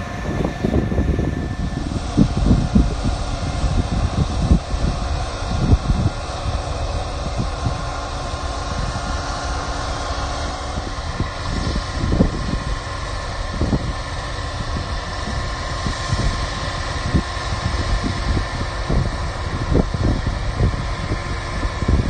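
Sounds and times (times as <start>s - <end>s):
combine harvester drone: 0.0s - 22.0s
wind rumbling on microphone: 0.0s - 22.0s.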